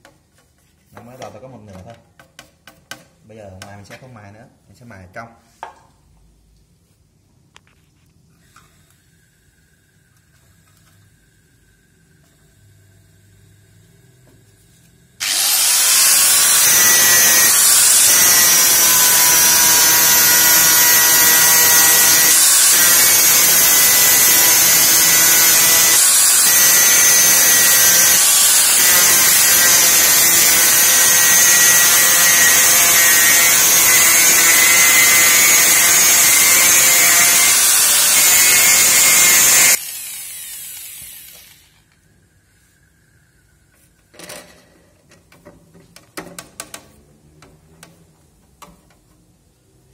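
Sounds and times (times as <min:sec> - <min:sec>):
power tool grinding: 0:15.2 - 0:41.8.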